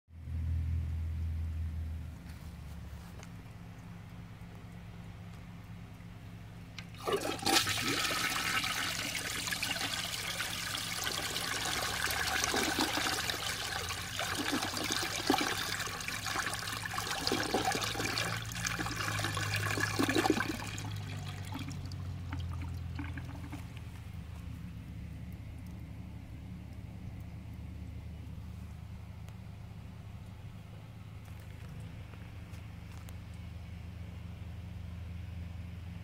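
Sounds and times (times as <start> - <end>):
toilet flushing: 6.8 - 23.7
water trickling: 6.8 - 24.3.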